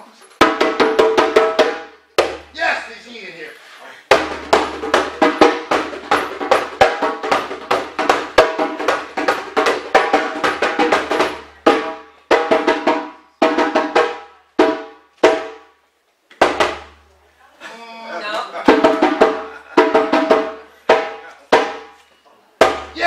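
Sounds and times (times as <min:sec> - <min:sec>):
hand drum rhythm: 0:00.4 - 0:02.6, 0:04.1 - 0:15.7, 0:16.4 - 0:17.0, 0:18.6 - 0:21.9, 0:22.6 - 0:23.0.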